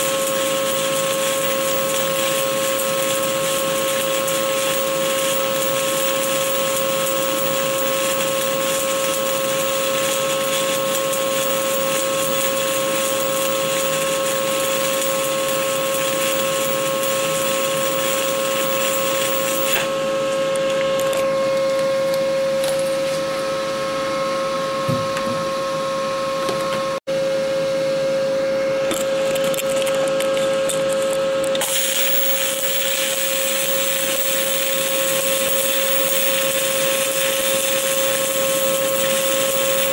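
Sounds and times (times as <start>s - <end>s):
welding arc crackling and hissing: 0.0s - 19.9s, 29.2s - 39.9s
steady hum: 19.0s - 31.6s.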